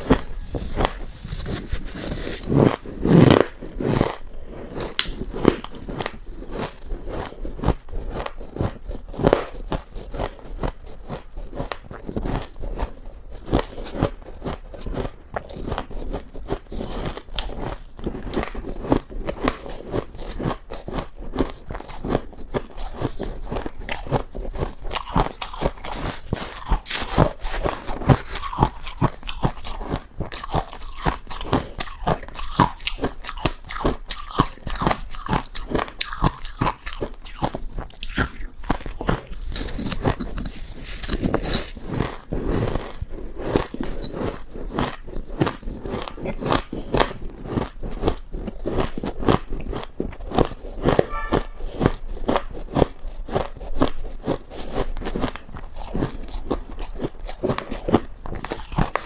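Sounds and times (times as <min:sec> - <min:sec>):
crunching and chewing frost: 0:00.0 - 0:59.0.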